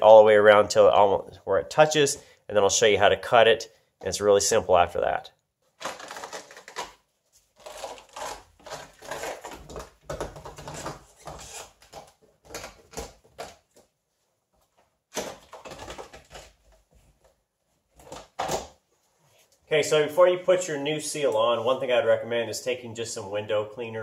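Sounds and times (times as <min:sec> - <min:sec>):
rubber seal tearing off metal: 0:05.8 - 0:07.0, 0:07.6 - 0:13.5.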